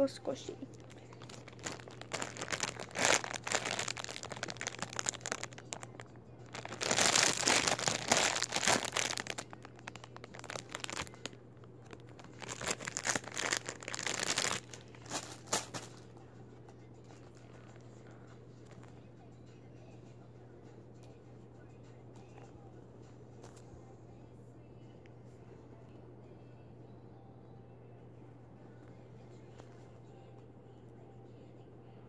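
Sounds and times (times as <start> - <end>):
plastic bag crinkling: 0.6 - 16.0.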